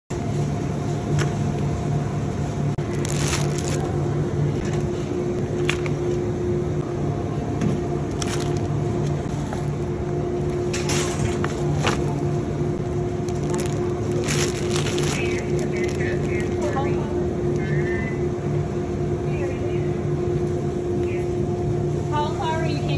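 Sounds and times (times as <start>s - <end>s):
steady low hum: 0.1s - 22.9s
plastic packaging rustling: 2.8s - 3.9s, 8.1s - 8.8s, 13.2s - 16.6s
wire shopping cart rattling: 13.4s - 16.0s.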